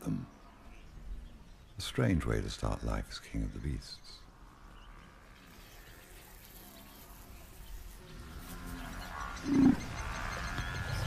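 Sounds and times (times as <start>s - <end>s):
large animal growl: 8.1s - 11.0s.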